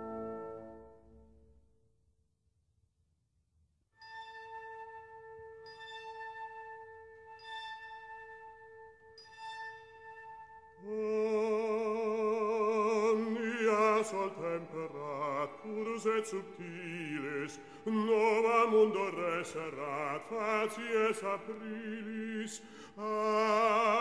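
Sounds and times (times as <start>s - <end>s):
operatic singer with vibrato: 10.8s - 24.0s.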